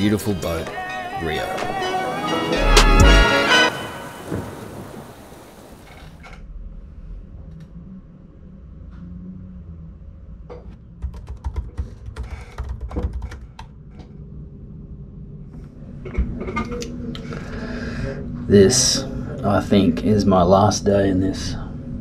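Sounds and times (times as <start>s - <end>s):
laptop keyboard typing: 11.0s - 13.7s.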